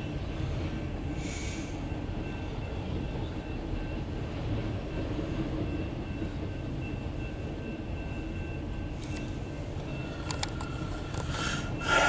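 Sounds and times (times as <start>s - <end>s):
faint crossing bell ringing: 1.9s - 12.0s
freight cars rumbling past: 10.6s - 12.0s.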